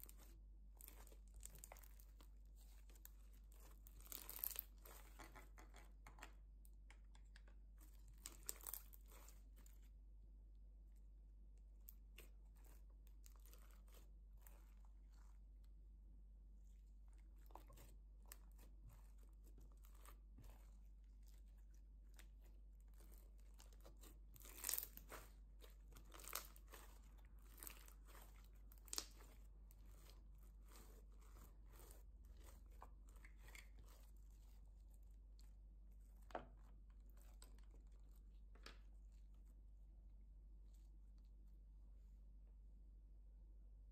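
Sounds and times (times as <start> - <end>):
slime crackling and crunching: 0.0 - 6.1, 7.6 - 10.0, 11.7 - 15.8, 16.6 - 39.5
slime popping: 22.9 - 30.1.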